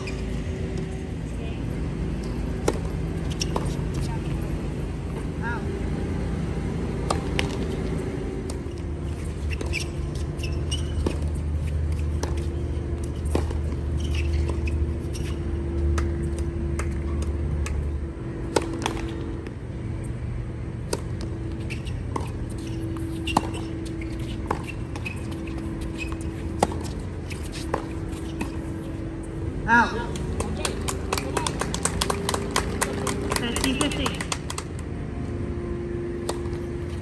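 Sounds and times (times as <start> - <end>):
shoes squeaking on court: 0.0 - 5.3, 6.5 - 19.4, 20.8 - 29.5, 30.1 - 34.6
low hum: 0.0 - 37.0
tennis ball struck by racquets: 2.1 - 4.5, 6.6 - 8.9, 12.0 - 14.7, 15.8 - 19.4, 20.8 - 28.9, 30.1 - 34.8, 36.2 - 36.7.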